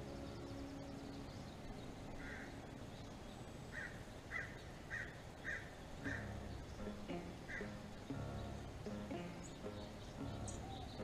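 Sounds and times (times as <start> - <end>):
crow cawing: 2.2 - 2.6, 3.7 - 6.4.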